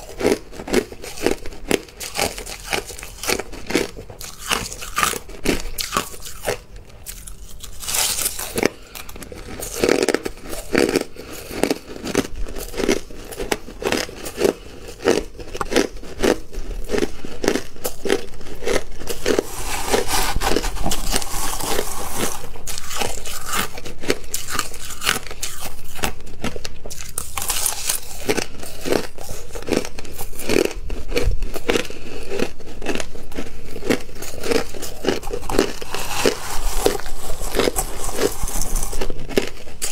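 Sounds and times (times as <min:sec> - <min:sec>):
crushed ice being chewed: 0:00.0 - 0:39.9
metal spoon scraping steel bowl: 0:19.3 - 0:23.2, 0:35.8 - 0:39.1.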